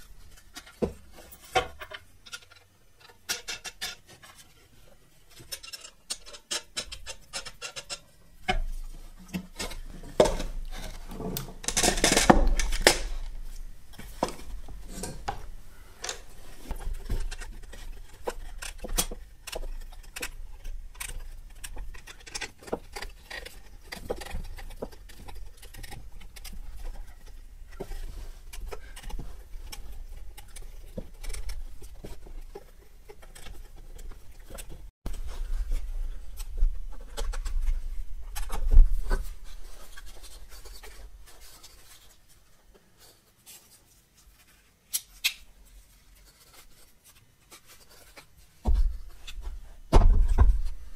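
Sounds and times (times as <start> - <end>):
bolts clicking and scraping on plywood: 5.3 - 42.1.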